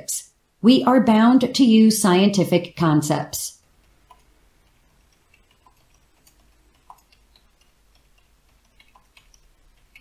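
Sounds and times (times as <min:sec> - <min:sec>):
keyboard typing: 0:03.8 - 0:10.0.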